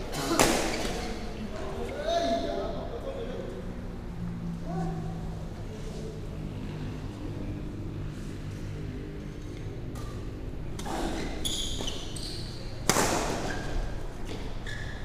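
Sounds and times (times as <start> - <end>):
rackets hitting shuttlecock: 9.9 - 10.9, 12.8 - 14.6
shoes squeaking on court: 9.9 - 15.0.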